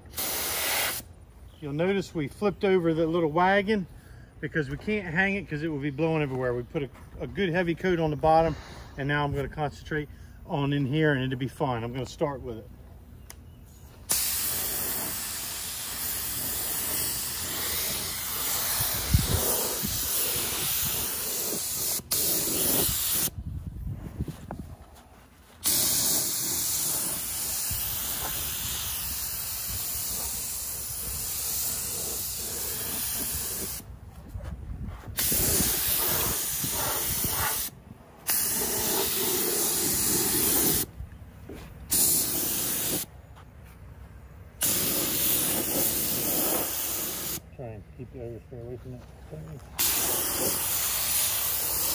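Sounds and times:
paint spray gun hissing: 0.0s - 1.1s, 14.1s - 23.3s, 25.6s - 33.9s, 35.2s - 37.7s, 38.3s - 40.9s, 41.9s - 43.1s, 44.6s - 47.4s, 49.8s - 51.9s.

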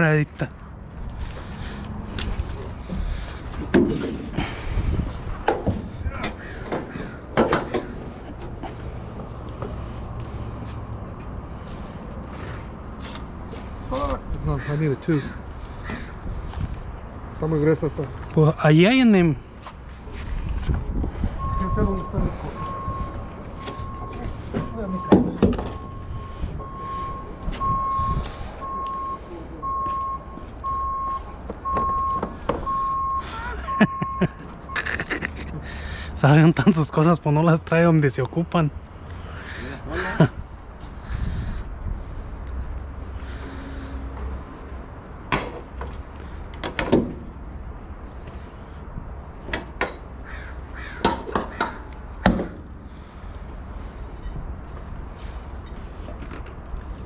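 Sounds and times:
reversing alarm beeping: 21.4s - 34.9s.

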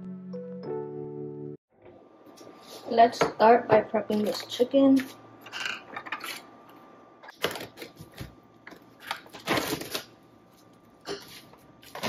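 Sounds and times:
plastic wrap rustling: 7.3s - 12.0s.

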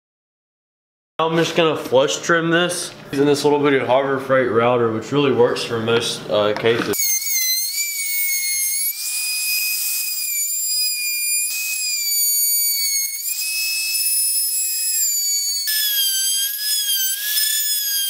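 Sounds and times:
trim router whining: 6.9s - 18.0s.

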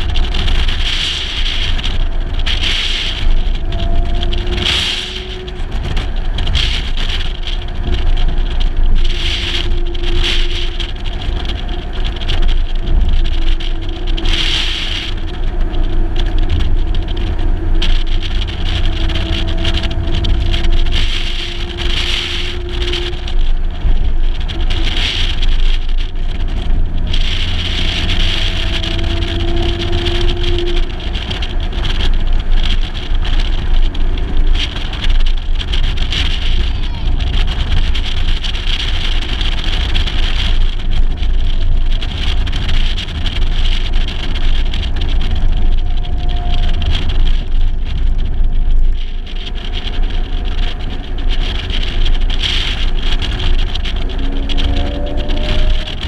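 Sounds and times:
car engine driving: 0.0s - 56.0s
wind rumble on microphone: 0.0s - 56.0s.

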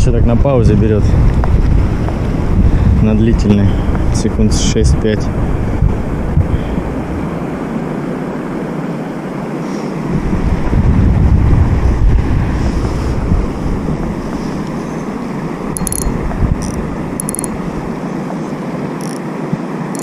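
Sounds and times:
wind buffeting microphone: 0.0s - 20.0s
high clicking: 15.7s - 19.3s.

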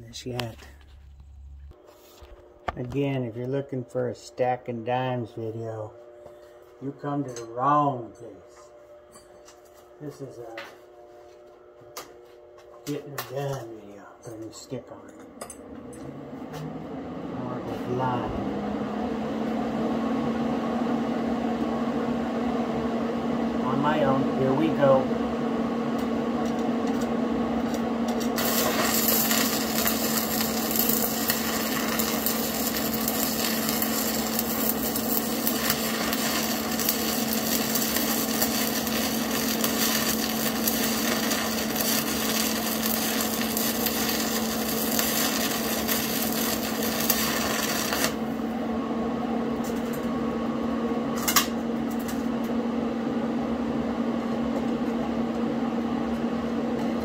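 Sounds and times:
electrical hum: 0.0s - 57.0s
welding arc crackling: 26.5s - 48.4s.

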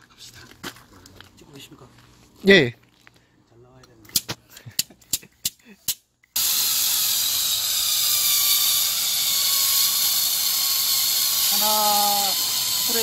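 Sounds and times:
spray gun hissing: 6.4s - 13.0s.

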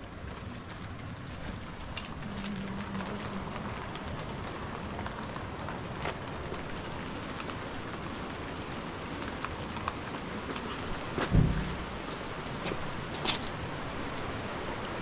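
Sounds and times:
steady rain: 0.0s - 15.0s
dull thump: 11.2s - 12.2s.

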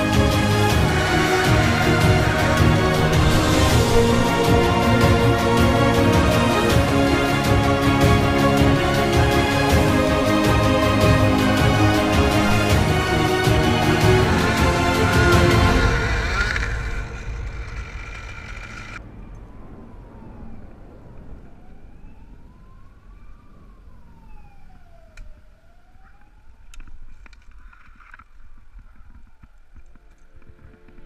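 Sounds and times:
background music: 0.0s - 18.8s
faint siren wailing: 0.0s - 28.2s.

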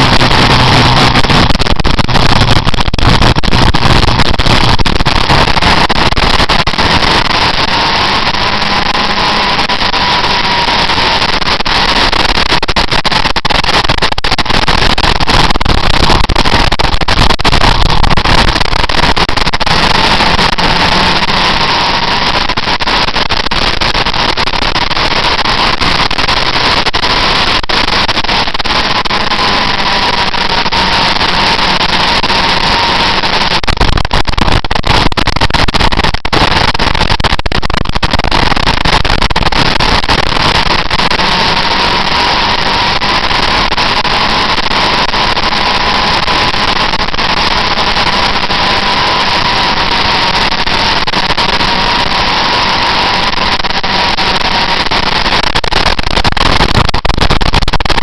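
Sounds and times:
motorcycle engine: 0.0s - 12.1s, 17.7s - 23.1s.

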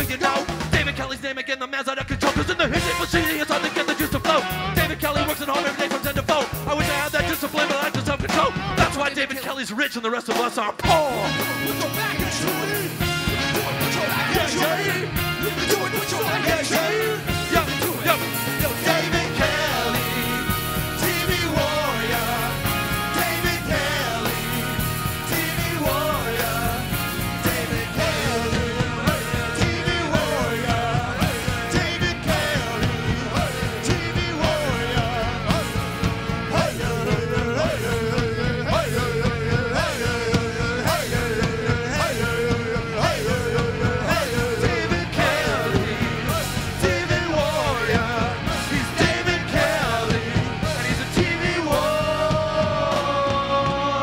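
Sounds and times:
bass guitar: 0.0s - 1.2s, 2.4s - 9.3s, 10.8s - 54.0s
drums steady beat: 0.0s - 1.2s, 2.0s - 54.0s
wavering lead guitar line: 10.8s - 54.0s.

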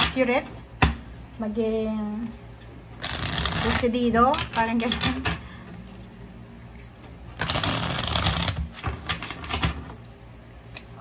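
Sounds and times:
cards shuffling: 3.0s - 4.6s, 6.8s - 9.7s.

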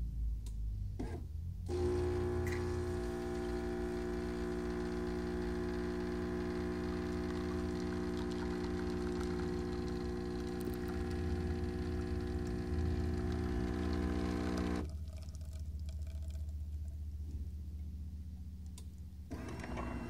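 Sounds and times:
low hum: 0.0s - 20.0s
espresso machine pump buzzing: 1.7s - 14.9s, 19.3s - 20.0s.

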